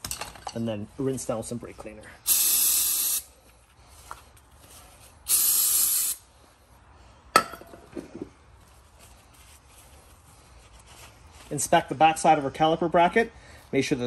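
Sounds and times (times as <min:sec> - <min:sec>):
aerosol spray burst: 0:02.3 - 0:03.3, 0:05.3 - 0:06.2.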